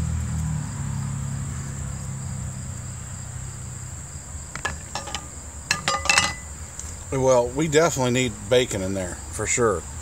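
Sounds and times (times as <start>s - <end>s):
insects chirring: 0.4s - 10.0s.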